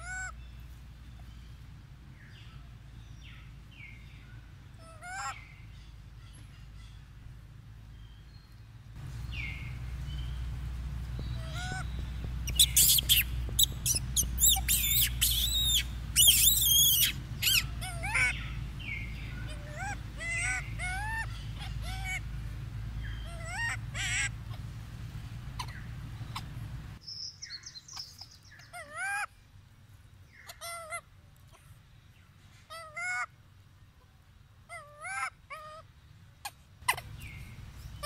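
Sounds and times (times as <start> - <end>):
low steady rumble: 0.0 - 38.0
monkey screaming: 4.8 - 5.4, 11.4 - 11.8, 12.5 - 18.5, 19.4 - 22.2, 23.2 - 24.4, 28.7 - 29.3, 34.7 - 35.8.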